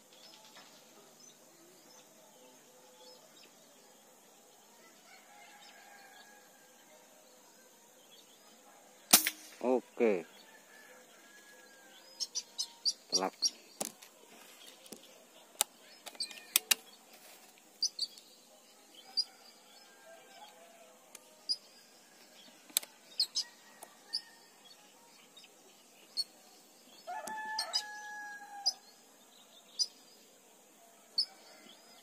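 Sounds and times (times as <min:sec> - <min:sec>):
small birds chirping: 0:00.0 - 0:32.0
sharp clicks: 0:15.6 - 0:16.9
rooster crowing: 0:19.2 - 0:21.0, 0:27.1 - 0:28.8.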